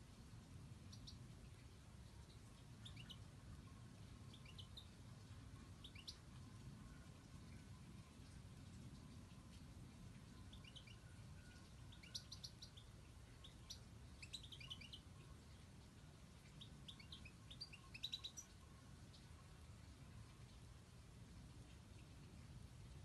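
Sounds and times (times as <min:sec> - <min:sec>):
goldfinches twittering chirps: 0:02.3 - 0:03.2, 0:04.3 - 0:05.0, 0:10.2 - 0:19.3.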